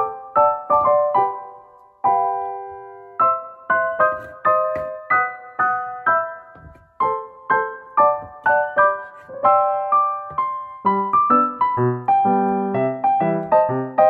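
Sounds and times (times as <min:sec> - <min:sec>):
gentle piano melody: 0:00.0 - 0:14.0.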